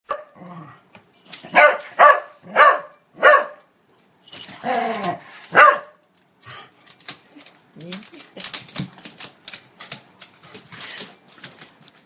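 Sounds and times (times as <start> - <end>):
dog barking: 1.5 - 3.7, 5.5 - 6.0.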